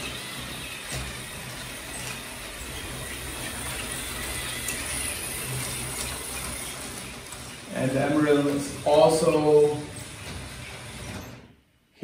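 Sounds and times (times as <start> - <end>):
toy train motor and wheels rumbling: 0.0 - 11.6
light clicks of train on track: 3.6 - 6.5.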